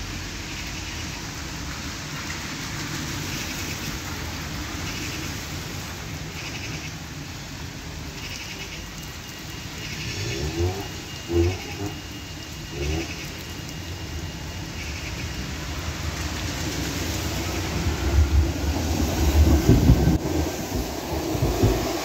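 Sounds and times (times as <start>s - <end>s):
background traffic: 0.0s - 22.0s
rain on wet street: 0.0s - 22.0s.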